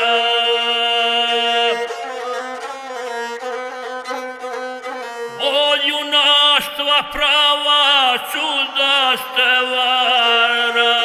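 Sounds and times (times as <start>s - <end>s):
bowed single-string fiddle melody: 0.0s - 7.8s.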